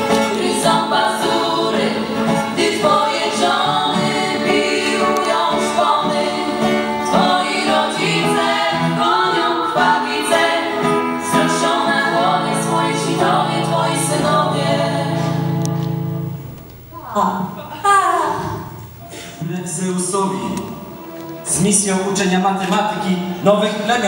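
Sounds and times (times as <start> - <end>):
girls singing together: 0.0 - 15.8
instrumental backing music: 0.0 - 17.0, 18.6 - 24.0.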